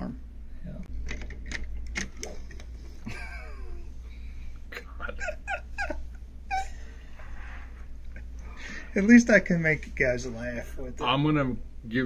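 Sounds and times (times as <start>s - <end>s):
men laughing: 3.0s - 4.0s, 4.7s - 6.9s.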